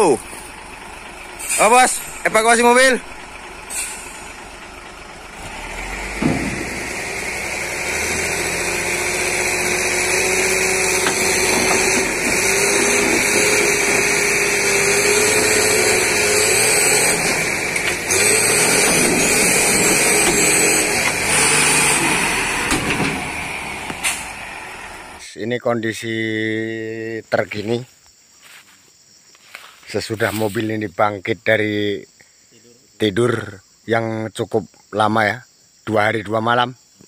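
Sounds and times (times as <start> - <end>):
truck diesel engine under load: 0.0 - 25.3.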